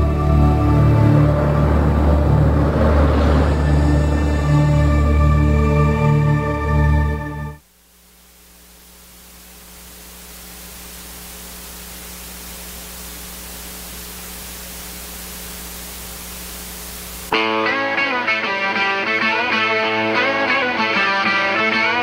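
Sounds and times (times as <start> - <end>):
guitar music: 0.0 - 7.6, 17.3 - 22.0
low hum: 0.0 - 17.3
steady hiss: 7.6 - 22.0.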